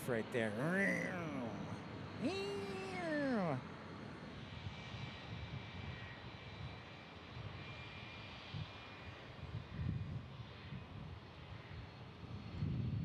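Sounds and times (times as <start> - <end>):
distant jet engine roar: 0.0 - 9.7.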